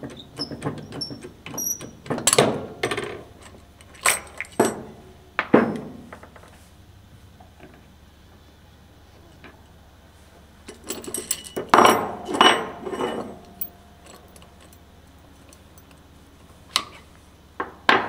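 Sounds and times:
steel parts clinking and clanking: 0.4 - 6.5, 10.6 - 17.1.

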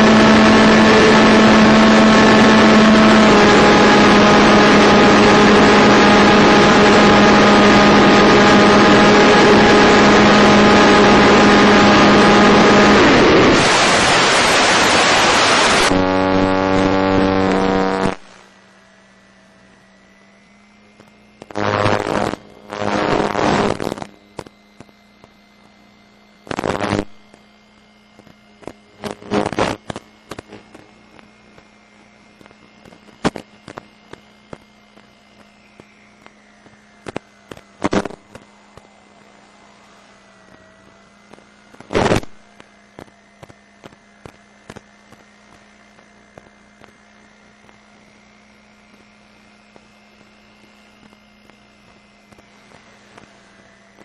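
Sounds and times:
bursts of static: 0.0 - 18.6, 20.4 - 54.0
faint wavering whine: 0.0 - 54.0
steady hum: 0.0 - 54.0
crackles: 10.8 - 18.6, 20.4 - 54.0.

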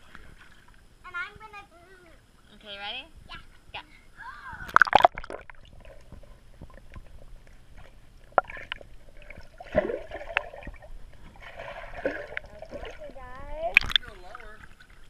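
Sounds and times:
underwater bubbling and gurgling: 4.7 - 15.0.

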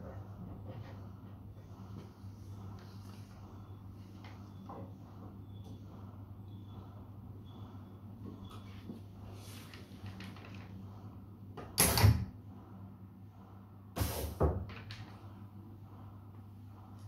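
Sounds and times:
steady low hum: 0.0 - 17.0
short bursts of air: 14.0 - 14.5.

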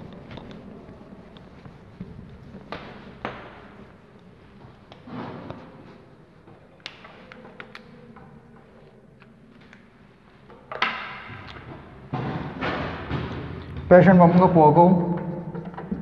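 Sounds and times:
marker writing on whiteboard: 0.0 - 10.3.

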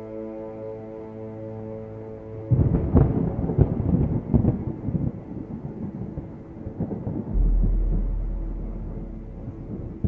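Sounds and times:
thunder rumbling and cracking: 2.5 - 10.0
deep thunder boom: 7.1 - 10.0.

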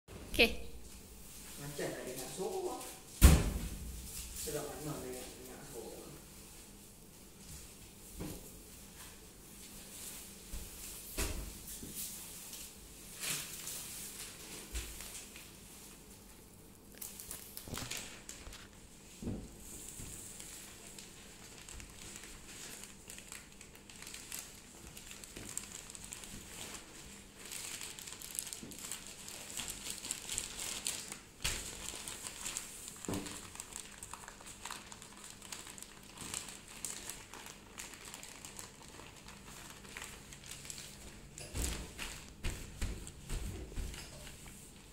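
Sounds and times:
plastic bags crinkling: 16.6 - 43.1.

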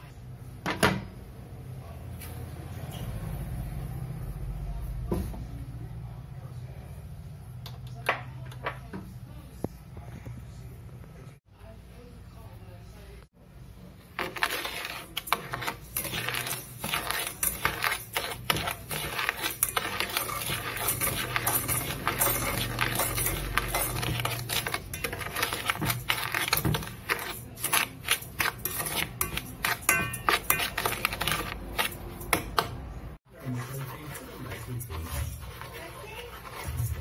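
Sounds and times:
metal spoon scraping a pot: 14.0 - 37.0.

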